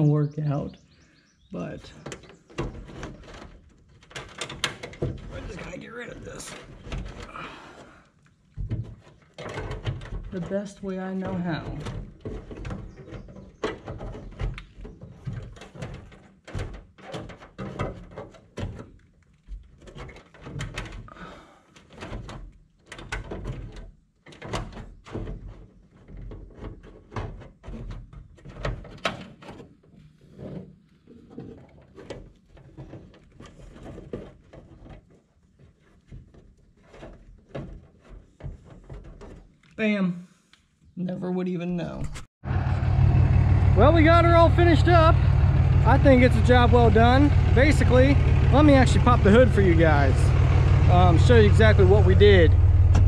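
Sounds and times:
hands clicking and tapping wiring: 2.1s - 29.7s.

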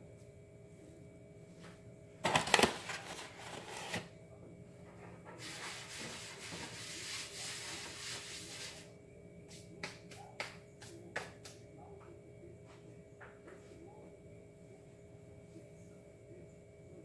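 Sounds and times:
hand rubbing flour in metal pan: 5.4s - 8.9s.

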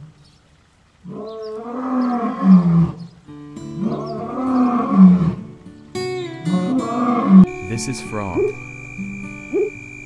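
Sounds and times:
lion calling: 1.0s - 5.5s, 6.4s - 10.0s
background music: 3.8s - 10.0s.

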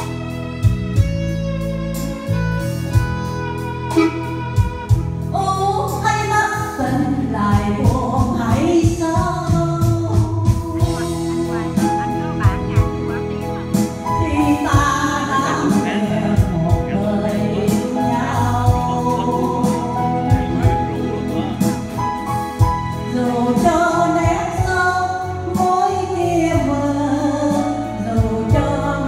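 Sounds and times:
instrumental accompaniment with beat: 0.0s - 29.0s
woman singing a ballad: 5.3s - 21.9s, 22.6s - 29.0s.

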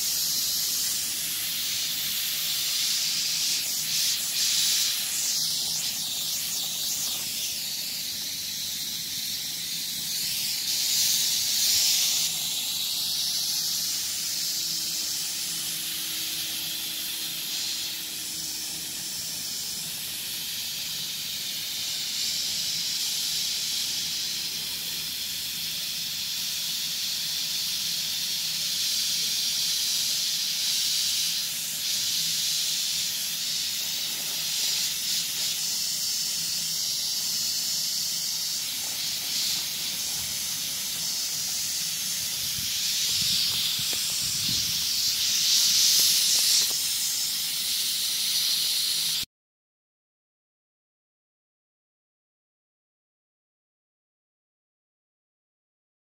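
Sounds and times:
hose water spattering on soil: 38.6s - 47.0s.

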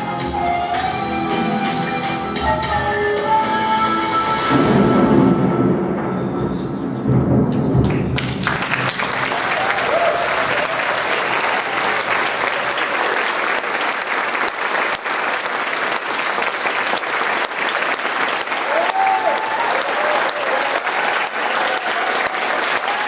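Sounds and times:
audience applause: 7.8s - 23.0s.

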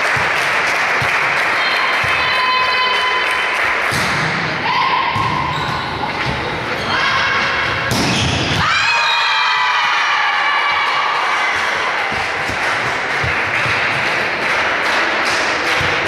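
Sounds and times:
crowd noise: 0.0s - 16.0s.

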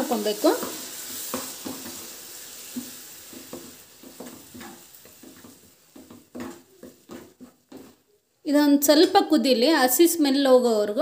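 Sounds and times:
sizzle: 0.0s - 10.3s
ladle scraping and tapping pan: 0.6s - 2.1s, 2.7s - 8.0s
ladle stirring thick paste: 0.6s - 8.2s.

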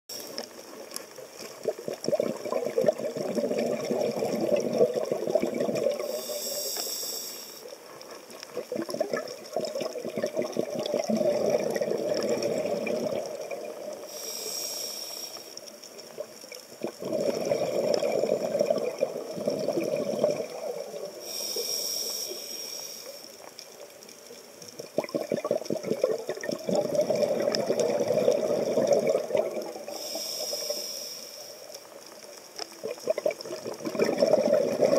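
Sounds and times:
exhaled bubbles gurgling: 0.1s - 6.8s, 7.7s - 21.7s, 23.1s - 34.9s
diver inhaling through regulator: 5.9s - 7.7s, 14.0s - 15.6s, 21.2s - 23.3s, 29.8s - 31.7s.

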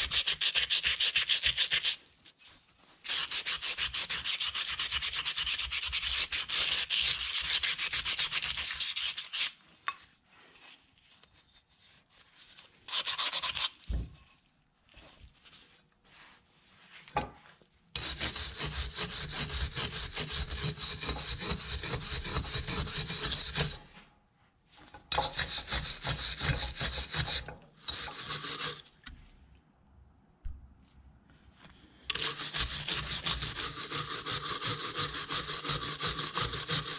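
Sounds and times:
wire brush scrubbing metal: 25.1s - 28.8s, 32.1s - 36.9s.

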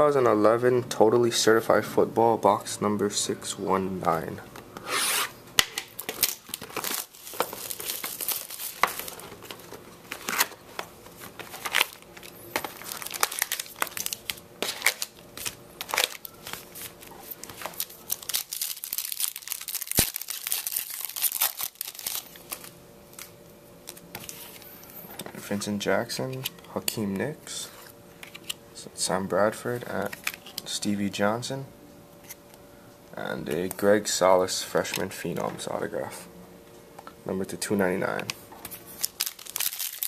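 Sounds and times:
plastic wrapping crinkling and tearing: 5.8s - 23.3s, 38.6s - 40.0s.

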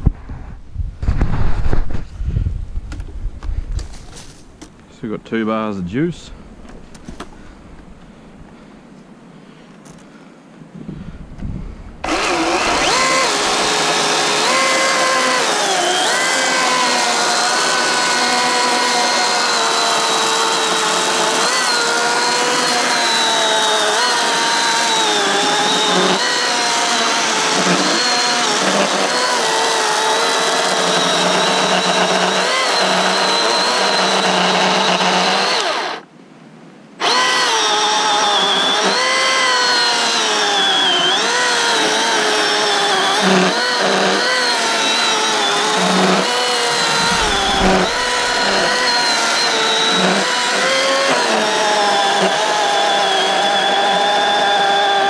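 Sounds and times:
chainsaw cutting logs: 12.0s - 36.1s, 37.0s - 55.0s.

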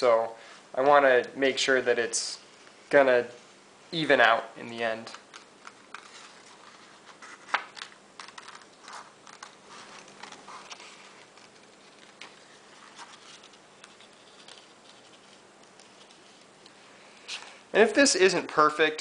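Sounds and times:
paper rustling: 4.9s - 17.6s.

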